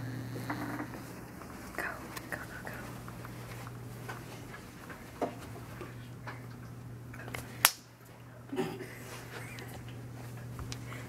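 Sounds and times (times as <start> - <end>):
steady low hum: 0.0 - 11.0
soft footsteps: 0.3 - 6.7
faint rustling: 0.4 - 6.5.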